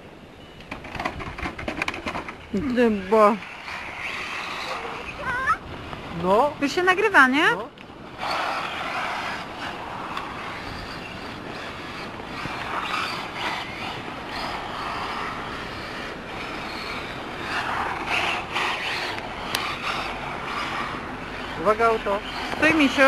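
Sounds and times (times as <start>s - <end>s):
rc car motor whirring: 2.0s - 5.6s, 8.2s - 23.0s.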